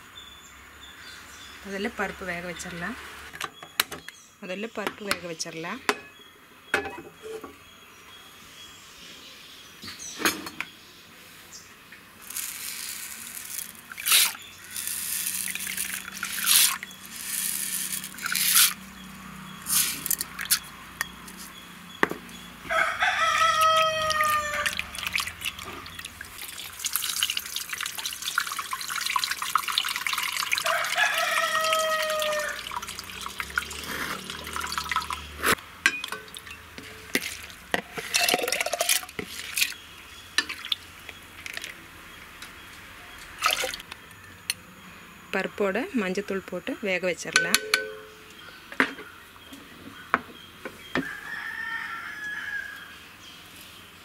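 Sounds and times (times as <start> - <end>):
rooster crowing: 22.6 - 25.0, 30.6 - 32.9, 51.0 - 53.0
water splashing and swishing: 23.8 - 39.8, 43.4 - 43.9.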